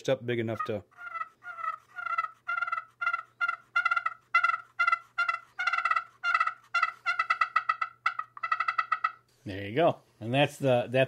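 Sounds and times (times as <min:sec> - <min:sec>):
turkey pot call hen notes: 0:00.5 - 0:09.3.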